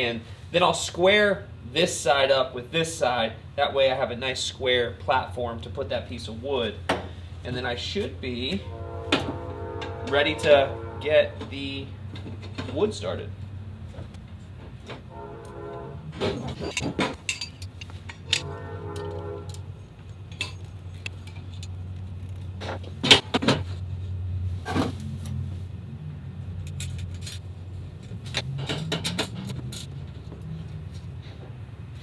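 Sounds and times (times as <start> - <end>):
steady low hum: 1.3 - 32.0
metal parts clinking: 16.5 - 19.7, 20.3 - 22.4, 26.6 - 27.4, 28.3 - 30.0.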